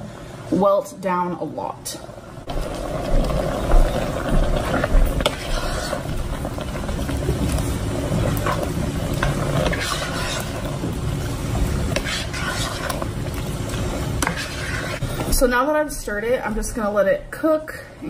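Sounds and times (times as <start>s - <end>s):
spoon stirring soup: 3.2s - 11.0s, 11.6s - 15.3s.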